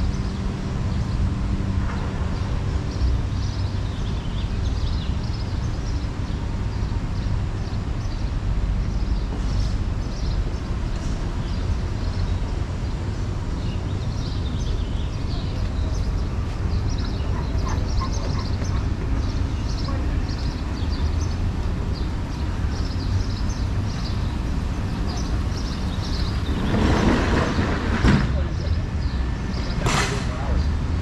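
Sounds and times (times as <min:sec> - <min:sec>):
low street rumble: 0:00.0 - 0:31.0
small birds chirping: 0:00.0 - 0:31.0.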